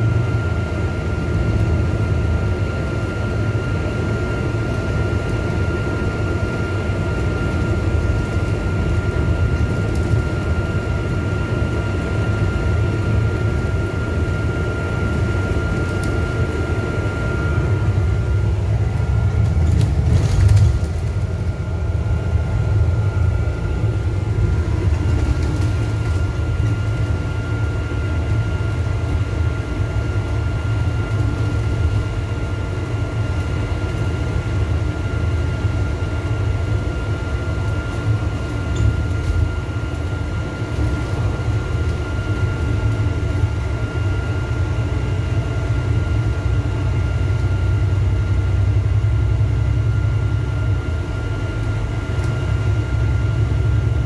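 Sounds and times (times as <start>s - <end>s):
bus engine drone: 0.0s - 54.0s
road noise: 17.5s - 27.2s.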